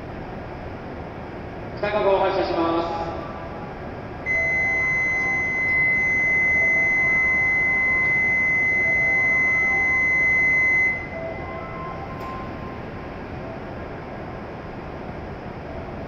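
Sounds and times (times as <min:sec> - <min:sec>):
high electronic tone: 0:04.3 - 0:13.1.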